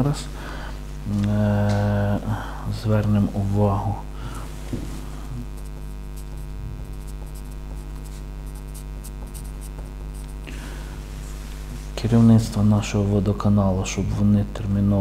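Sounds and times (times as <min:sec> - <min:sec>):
electrical mains hum: 0:00.0 - 0:15.0
pencil scratching on paper: 0:05.5 - 0:10.4.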